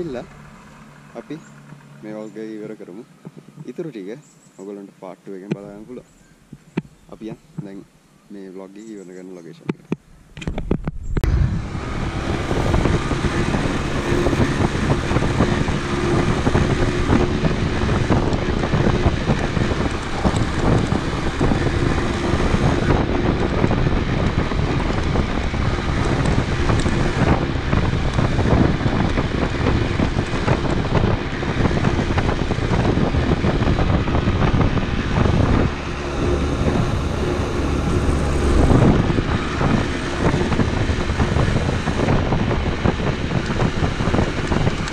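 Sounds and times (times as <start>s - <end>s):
motorcycle engine running: 0.0s - 3.7s, 10.0s - 44.9s
wind rumble on microphone: 9.7s - 44.9s.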